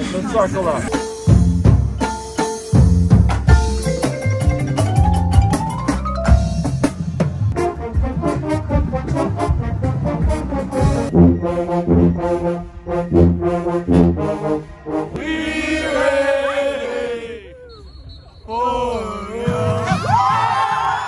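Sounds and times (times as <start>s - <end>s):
marimbas and drums: 0.9s - 7.6s
brass chords: 7.4s - 17.4s.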